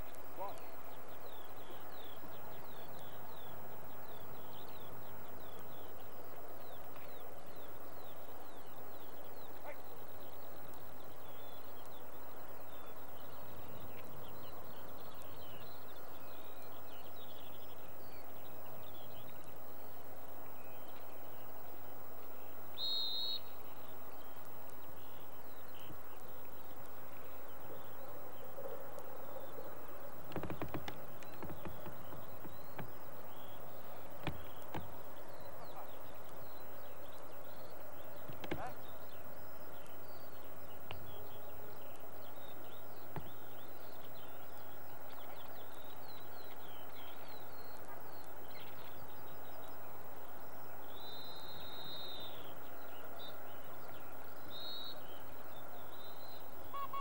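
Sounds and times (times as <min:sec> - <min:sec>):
small birds chirping: 0:00.0 - 0:57.0
sharp knocks: 0:30.3 - 0:32.9.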